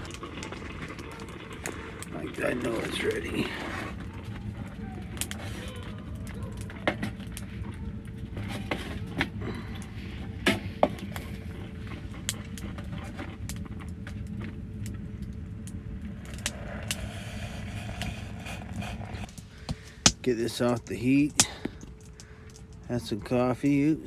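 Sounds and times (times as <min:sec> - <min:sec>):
coffee pouring into metal cup: 0:00.0 - 0:10.1
steady low rumble: 0:00.0 - 0:24.0.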